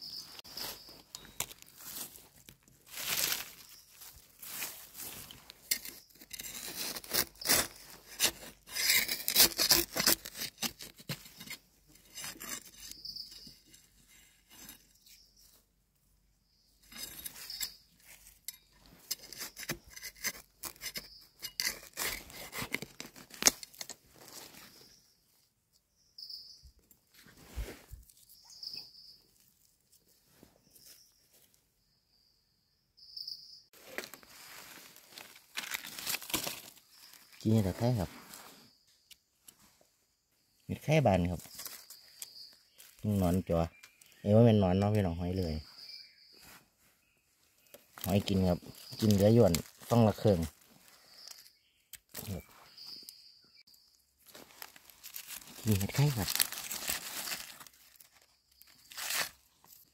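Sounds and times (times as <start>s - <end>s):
hands scraping through dry soil: 0.2s - 15.5s, 16.8s - 25.0s, 27.1s - 31.1s, 33.8s - 38.8s, 47.6s - 53.1s, 54.2s - 59.9s.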